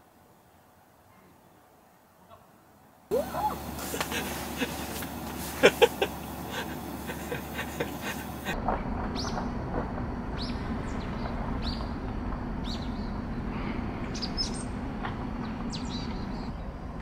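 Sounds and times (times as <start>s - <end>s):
steady low hum: 3.1s - 17.0s
small birds chirping: 9.2s - 9.5s, 10.4s - 12.0s, 12.6s - 14.8s, 15.4s - 17.0s.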